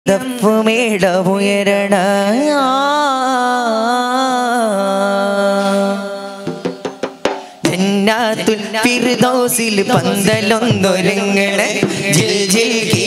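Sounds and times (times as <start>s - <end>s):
sharp percussion strikes: 6.4s - 13.0s
men singing: 7.6s - 13.0s.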